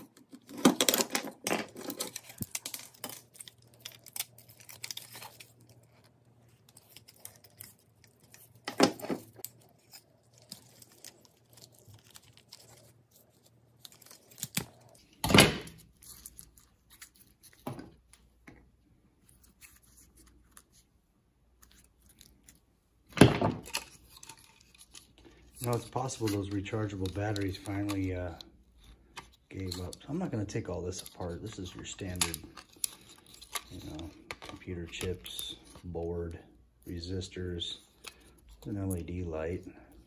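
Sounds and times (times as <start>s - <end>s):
handling clicks and rustles: 0.0s - 40.0s.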